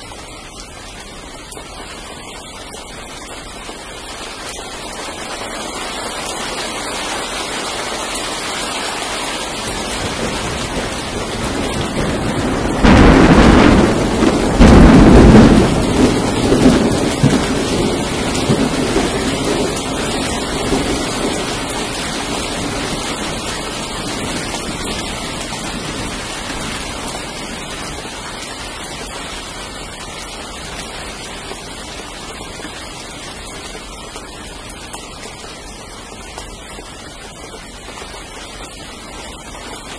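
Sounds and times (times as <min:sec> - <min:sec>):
steady rain: 0:00.0 - 0:39.9
thunder: 0:09.8 - 0:26.9.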